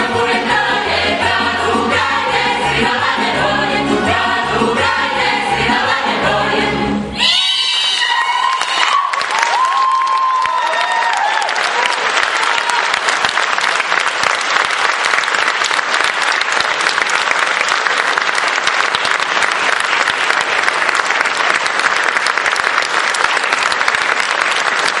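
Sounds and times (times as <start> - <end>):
audience applauding: 7.9 - 25.0.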